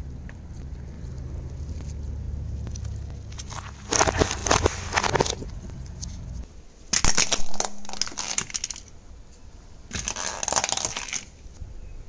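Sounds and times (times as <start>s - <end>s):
tyre crushing eggplants: 2.6s - 8.9s, 9.9s - 11.4s.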